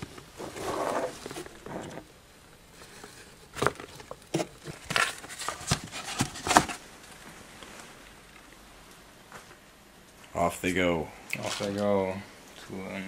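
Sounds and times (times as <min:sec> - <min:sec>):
cardboard box handled: 0:03.6 - 0:06.8.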